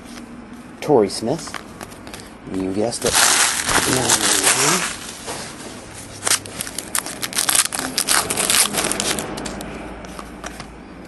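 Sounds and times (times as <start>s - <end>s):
wrapper tearing and crinkling: 3.0s - 5.6s, 6.2s - 9.6s.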